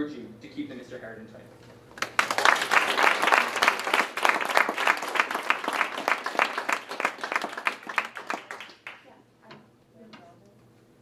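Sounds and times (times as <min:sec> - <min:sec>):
audience applauding: 0:01.9 - 0:09.1.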